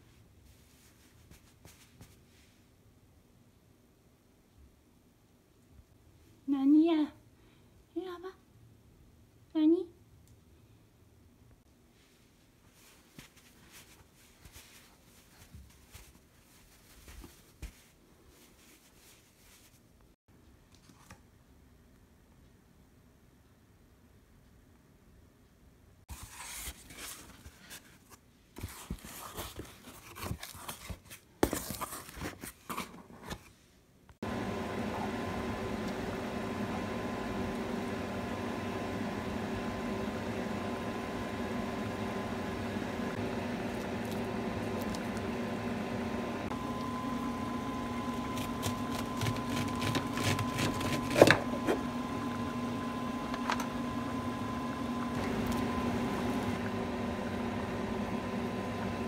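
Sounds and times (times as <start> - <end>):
packaging crinkling and rustling: 26.1 - 33.6, 48.0 - 51.8
kitchen fan hum: 34.2 - 59.0.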